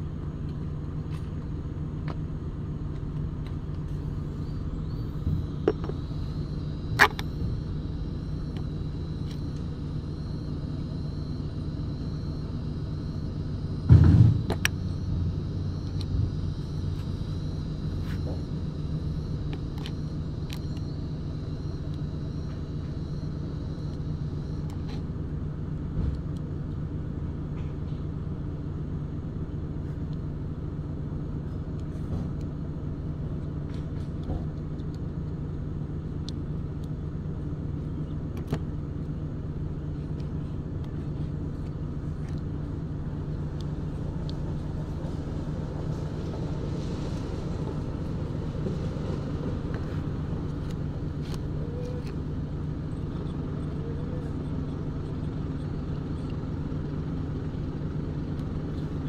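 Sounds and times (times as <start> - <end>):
low machine hum: 0.0 - 59.0
heavy thump: 13.8 - 14.7.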